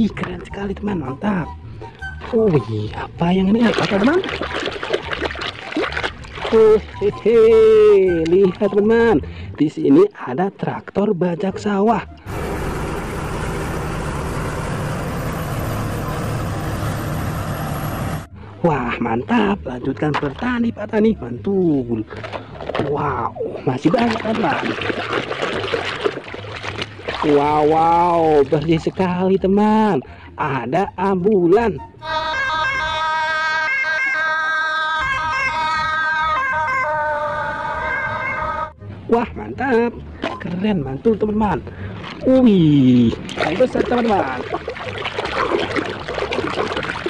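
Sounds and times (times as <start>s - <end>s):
tractor diesel engine under load: 12.3s - 18.3s.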